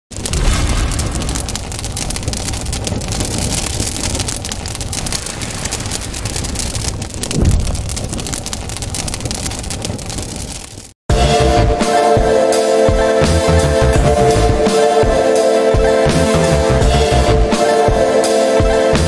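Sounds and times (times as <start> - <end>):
low boom: 0.1 - 9.4
fire crackling and rushing: 0.1 - 11.0.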